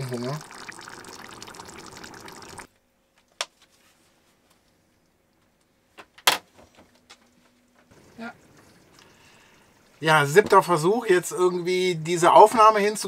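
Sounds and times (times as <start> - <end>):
curry bubbling in a pot: 0.0 - 2.7.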